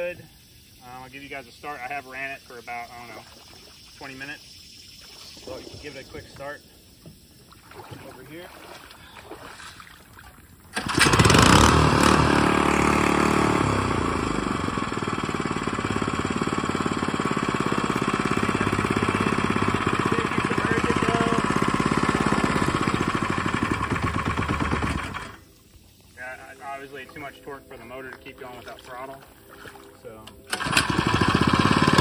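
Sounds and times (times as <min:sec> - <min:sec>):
small engine pull-started and running: 0:10.7 - 0:25.5, 0:30.3 - 0:32.0.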